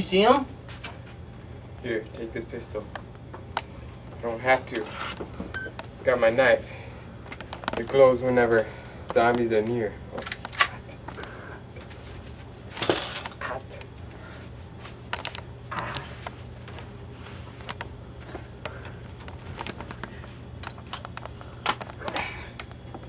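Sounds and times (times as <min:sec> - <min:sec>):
low steady hum: 0:00.0 - 0:23.0
small clicks and knocks: 0:17.6 - 0:23.0.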